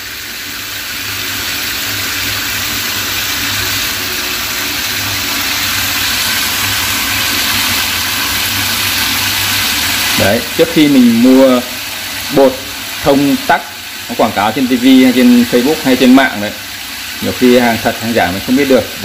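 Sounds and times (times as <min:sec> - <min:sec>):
water spraying onto steel sink: 0:00.0 - 0:19.0.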